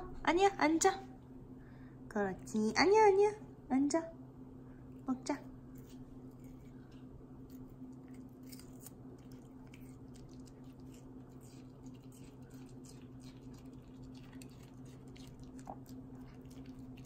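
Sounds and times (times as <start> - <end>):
steady low hum: 0.0 - 17.0
puppy chewing with wet crunches: 5.8 - 17.0.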